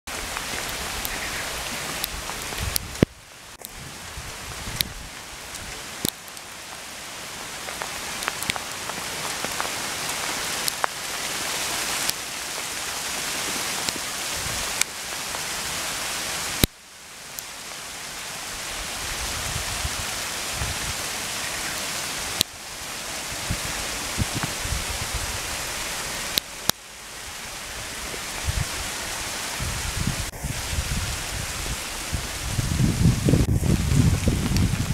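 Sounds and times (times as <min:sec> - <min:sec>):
hailstones clicking close by: 0:00.1 - 0:03.7, 0:04.6 - 0:15.8
hail hissing: 0:00.1 - 0:34.9.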